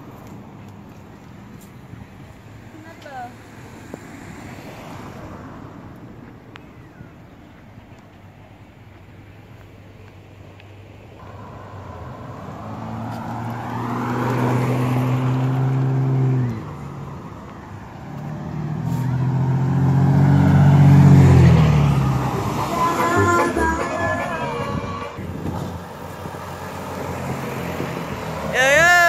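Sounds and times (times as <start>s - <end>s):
car engine droning: 11.2s - 28.9s.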